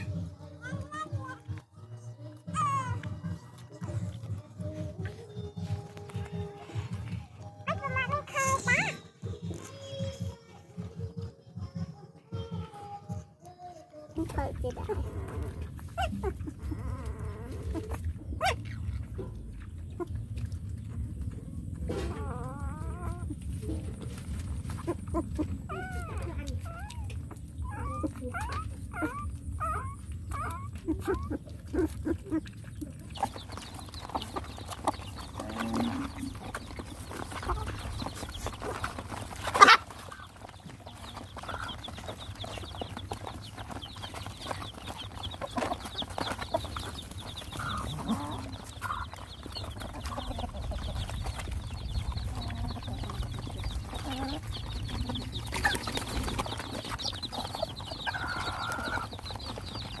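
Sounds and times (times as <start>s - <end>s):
puppy whimpering: 14.2s - 20.3s, 21.0s - 51.5s, 52.1s - 60.0s
hens clucking: 14.2s - 60.0s.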